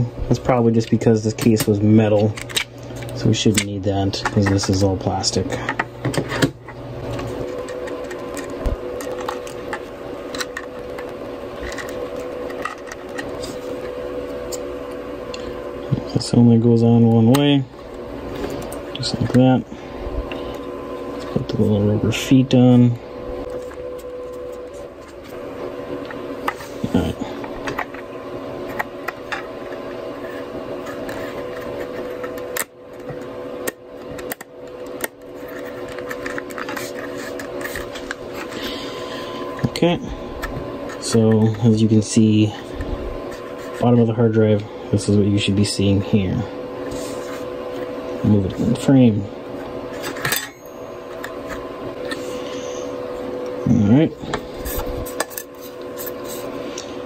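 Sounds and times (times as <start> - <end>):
steady electrical hum: 0.0 - 57.0
screwdriver working at a screw: 26.0 - 38.7.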